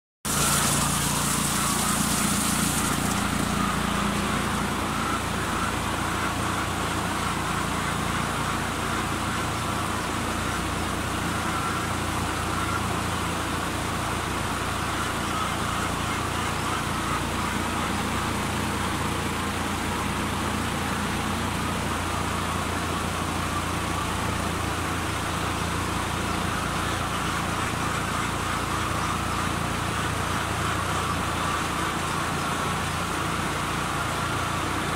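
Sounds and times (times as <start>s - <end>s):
water spray hissing on fan guard: 0.3s - 4.7s
exhaust fan humming: 0.3s - 34.9s.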